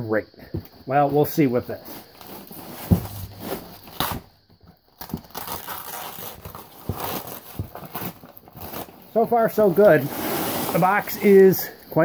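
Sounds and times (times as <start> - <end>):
foil wrapping being ripped open: 5.0 - 9.2.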